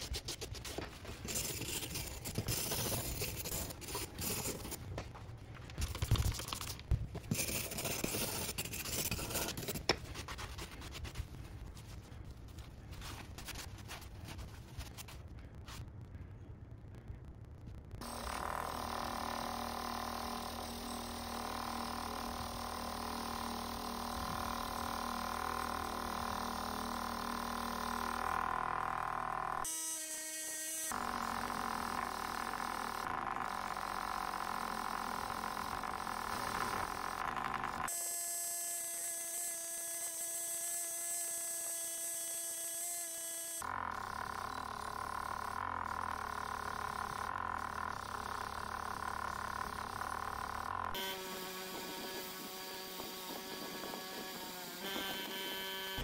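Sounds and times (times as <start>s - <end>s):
bench grinder motor whine: 18.0s - 56.0s.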